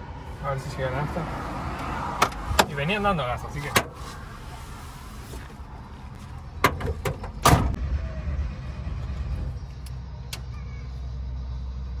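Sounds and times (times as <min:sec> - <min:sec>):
car door slamming: 0:06.6 - 0:07.8.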